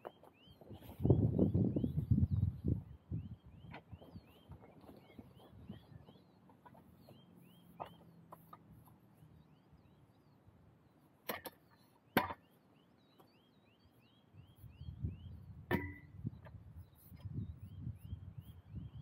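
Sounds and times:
bird chirping: 0:00.0 - 0:19.0.

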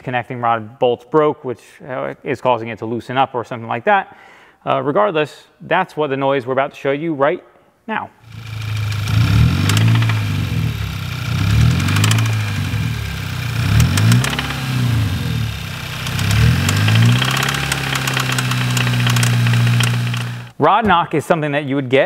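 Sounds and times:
car engine revving and idling: 0:08.3 - 0:20.5
engine rod knocking: 0:08.4 - 0:10.4, 0:11.3 - 0:12.6, 0:13.4 - 0:14.8, 0:15.5 - 0:20.5.

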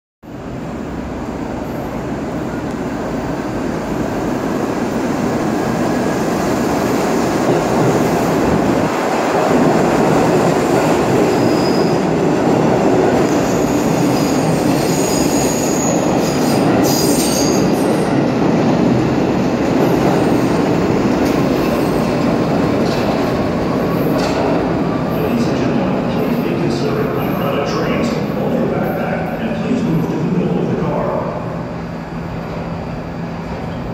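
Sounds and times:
train wheels rumbling and clacking: 0:04.8 - 0:30.9
high wheel squeals: 0:11.3 - 0:12.0, 0:13.3 - 0:17.8.

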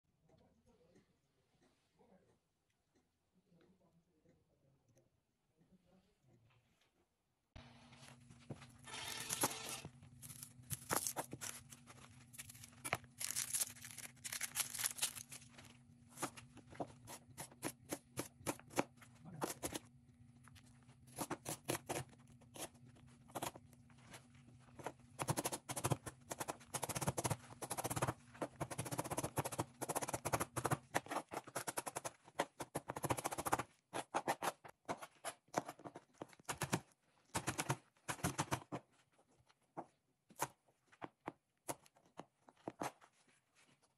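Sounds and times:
onion crunching: 0:08.9 - 0:26.6.

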